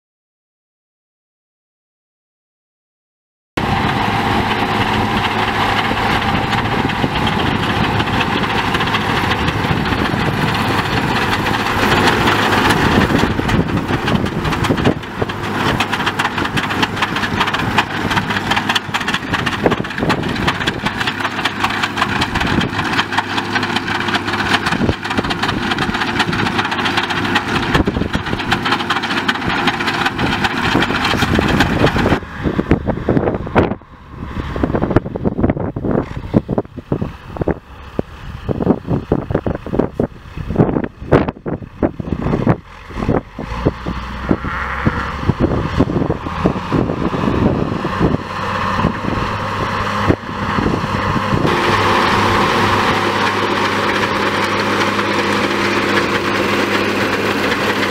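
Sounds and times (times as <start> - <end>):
loader wagon pickup clattering: 3.6 - 57.9
tractor diesel engine running: 3.6 - 57.9.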